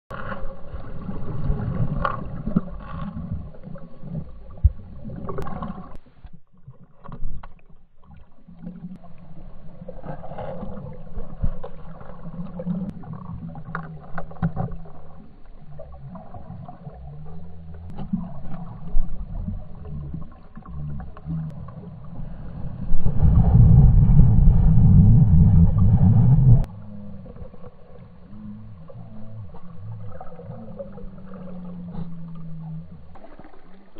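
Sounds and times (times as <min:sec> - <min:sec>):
muffled underwater rumbling: 0:00.1 - 0:33.9.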